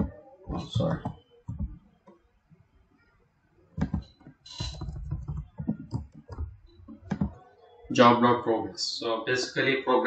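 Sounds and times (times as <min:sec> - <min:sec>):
keyboard clicks: 0:03.8 - 0:07.5.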